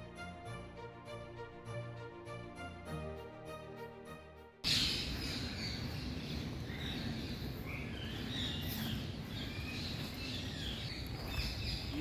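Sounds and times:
birds chirping: 4.6 - 12.0.

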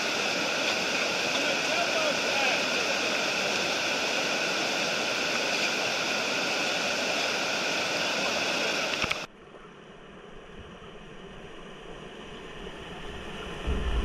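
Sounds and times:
rush of falling water: 0.0 - 9.3
quieter water sound: 0.0 - 14.0.

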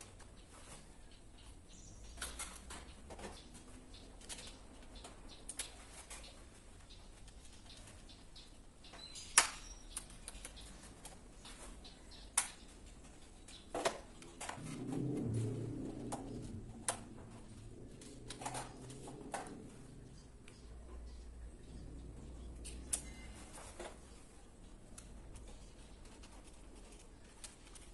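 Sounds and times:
circuit breakers clicking and snapping: 9.0 - 11.2, 22.6 - 23.2.

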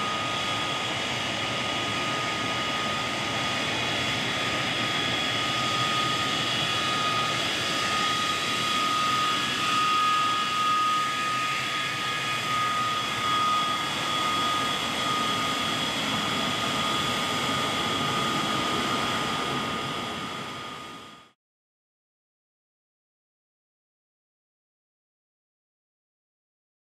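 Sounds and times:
jet engine roar with turbine whine: 0.0 - 21.4.

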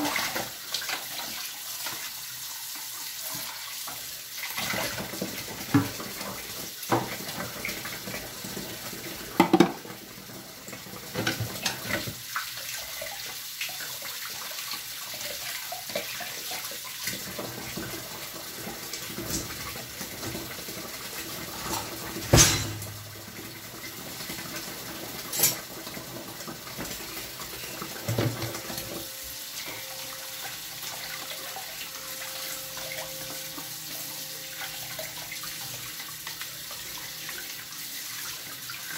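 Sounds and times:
dishes clattering against sink: 4.6 - 10.0, 10.7 - 12.2, 15.9 - 31.4
tap running into steel sink: 9.4 - 9.8.

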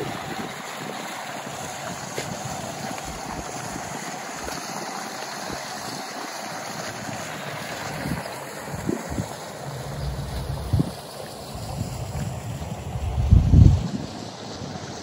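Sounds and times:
fountain water splashing: 0.0 - 15.0
wind thumps on microphone: 10.2 - 11.0, 13.0 - 14.1.

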